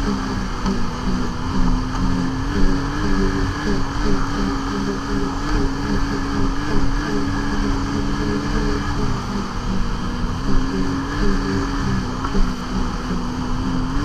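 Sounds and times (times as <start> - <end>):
snowmobile engine droning: 0.0 - 14.0.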